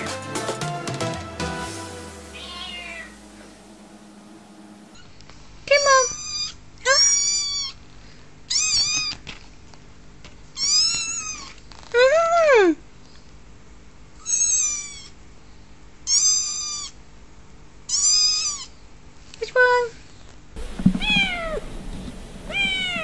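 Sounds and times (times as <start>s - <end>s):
kitten meowing: 2.4s - 3.2s, 8.5s - 9.2s, 20.6s - 23.0s.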